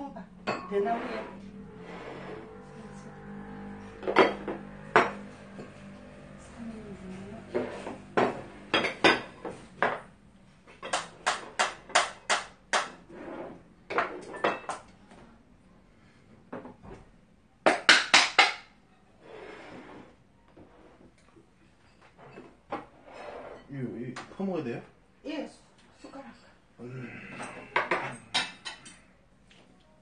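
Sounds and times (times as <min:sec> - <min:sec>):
ceramic dishes clinking on table: 0:07.6 - 0:10.0, 0:27.4 - 0:29.1.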